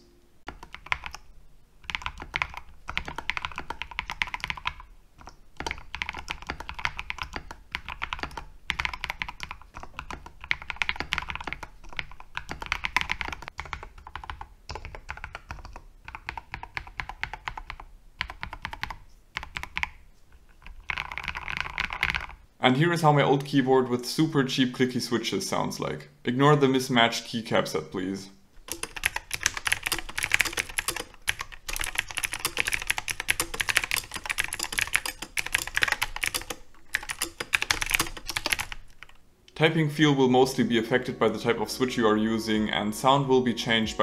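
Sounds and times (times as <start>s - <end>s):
mechanical keyboard typing: 0.5s - 20.0s, 20.6s - 22.4s, 28.6s - 39.2s.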